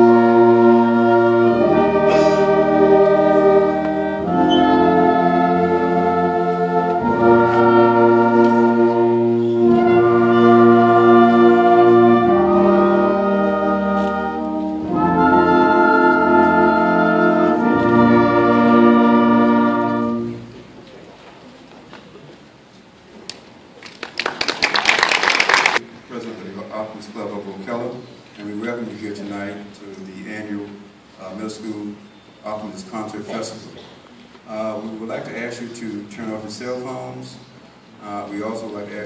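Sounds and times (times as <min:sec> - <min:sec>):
concert band held chords: 0:00.0 - 0:20.6.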